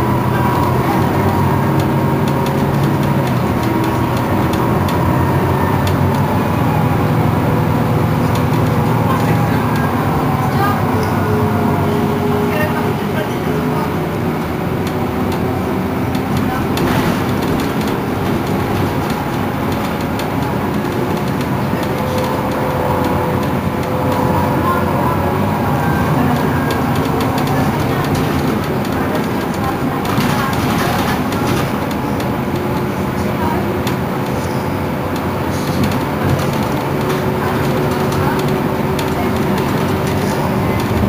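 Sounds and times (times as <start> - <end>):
bus engine drone: 0.0 - 41.0.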